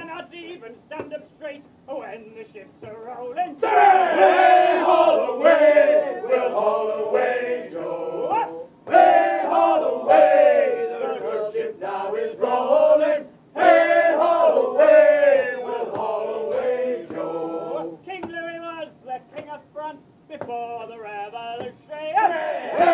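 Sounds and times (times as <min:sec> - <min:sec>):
men singing a sea shanty: 0:03.6 - 0:22.9.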